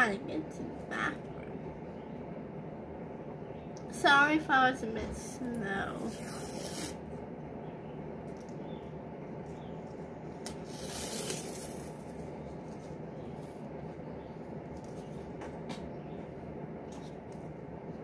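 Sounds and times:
low background hum: 0.0s - 18.0s
masking tape peeling: 6.1s - 7.0s, 10.4s - 13.6s.

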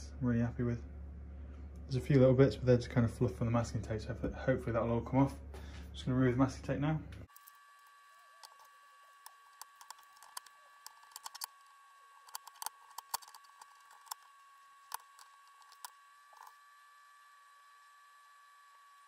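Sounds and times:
masking tape peeling clicks: 7.3s - 16.5s.

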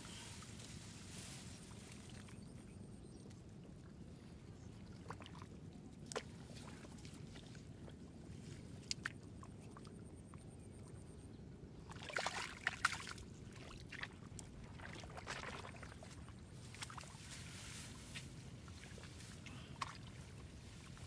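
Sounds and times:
shallow water splashing: 11.9s - 21.0s.

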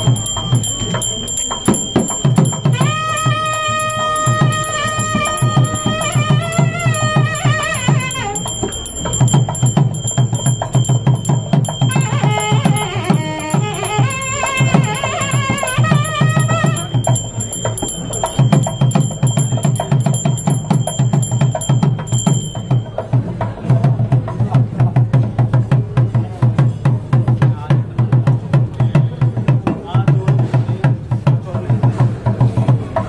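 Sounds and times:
melody with wavering pitch: 0.0s - 23.0s
barrel drum rapid strokes: 0.0s - 25.9s.

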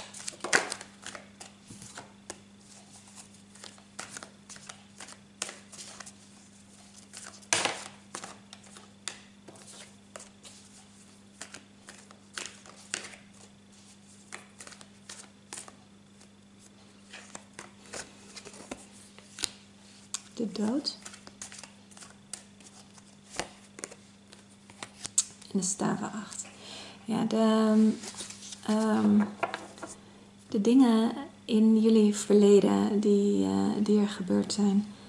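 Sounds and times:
cards being shuffled: 0.0s - 25.4s, 27.8s - 30.0s.

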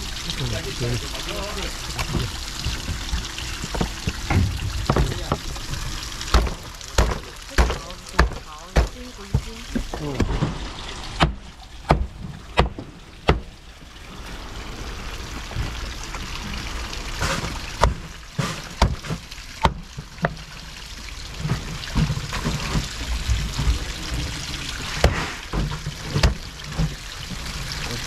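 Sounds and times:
water running and splashing: 0.0s - 28.0s
sharp knocks and clatters: 2.0s - 13.5s.

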